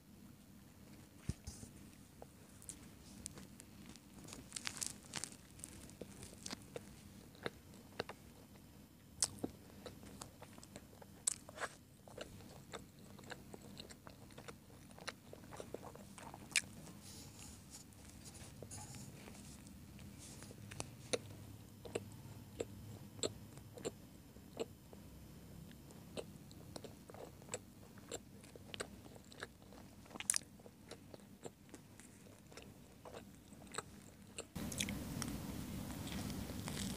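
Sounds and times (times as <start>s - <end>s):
chewing food: 2.2s - 25.0s, 25.7s - 36.9s.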